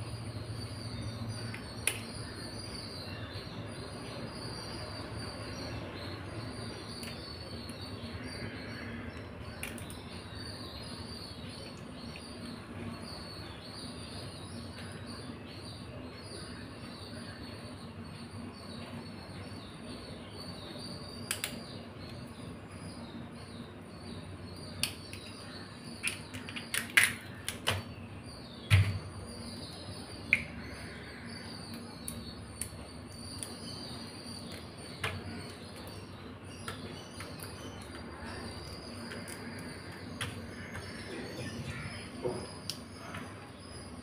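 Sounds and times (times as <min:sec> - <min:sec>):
steady hum: 0:00.0 - 0:44.0
crab shells cracking: 0:26.0 - 0:27.7.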